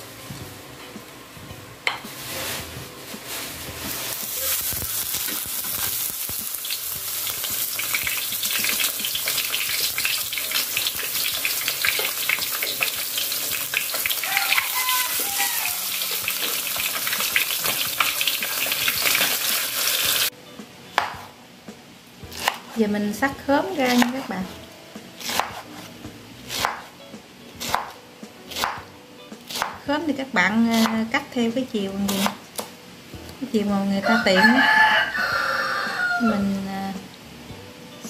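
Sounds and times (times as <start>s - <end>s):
fish sizzling in hot oil: 3.9s - 20.3s.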